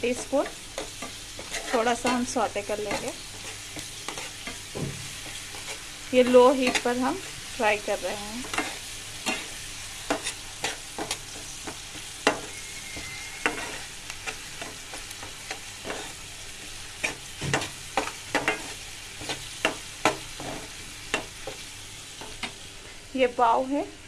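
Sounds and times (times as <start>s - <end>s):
onions sizzling in oil: 0.0s - 24.0s
spatula scraping a metal pan: 0.1s - 5.9s, 6.6s - 7.0s, 8.4s - 16.2s.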